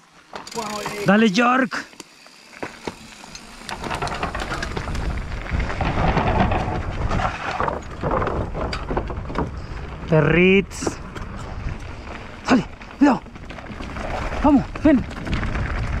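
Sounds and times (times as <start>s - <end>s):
bike clicking and rattling: 0.0s - 16.0s
tyres on loose dirt: 0.0s - 16.0s
wind rumbling on microphone: 3.6s - 16.0s.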